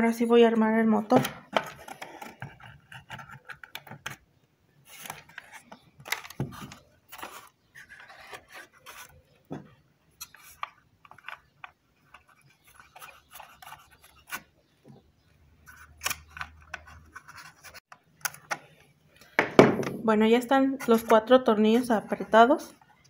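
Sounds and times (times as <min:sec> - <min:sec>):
hands scraping plastic: 0:01.2 - 0:04.2, 0:04.8 - 0:09.4, 0:10.2 - 0:19.4.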